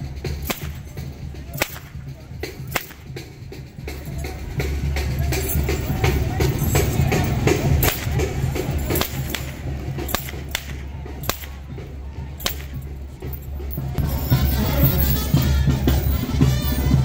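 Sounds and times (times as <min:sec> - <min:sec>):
band music with drum beat: 0:00.0 - 0:17.0
rope whip cracks: 0:00.4 - 0:00.8, 0:01.6 - 0:02.0, 0:02.7 - 0:03.1, 0:08.9 - 0:11.6.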